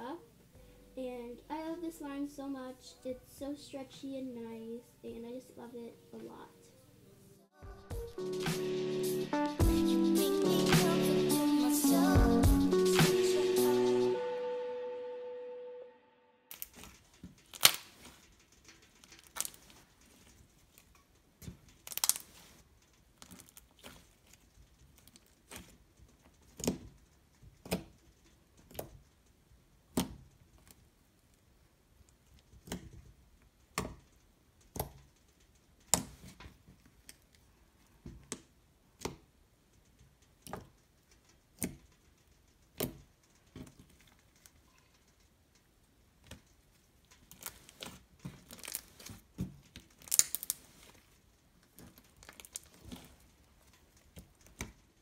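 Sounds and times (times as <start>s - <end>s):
slime popping and crackling: 16.5s - 29.2s, 46.0s - 55.0s.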